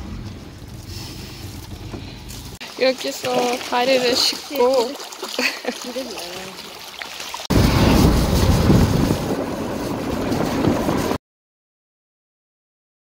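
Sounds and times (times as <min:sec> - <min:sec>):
faint running water: 0:02.0 - 0:07.5
wind rumble on microphone: 0:07.5 - 0:11.2.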